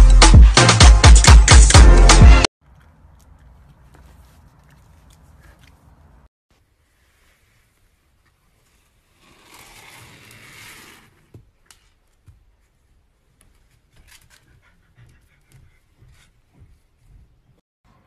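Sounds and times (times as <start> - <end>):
puppy scraping on wooden floor: 9.1 - 11.5.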